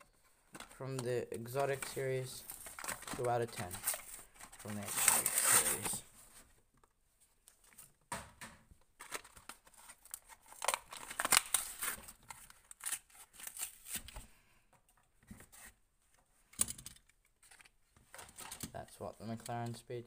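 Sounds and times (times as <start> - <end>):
plastic crackling: 0.5 - 6.1, 8.9 - 14.2
cardboard ripping: 2.7 - 6.0.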